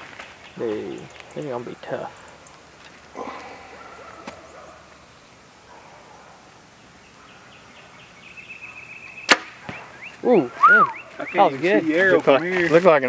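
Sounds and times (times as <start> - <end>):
faint high chirping: 6.9 - 11.6.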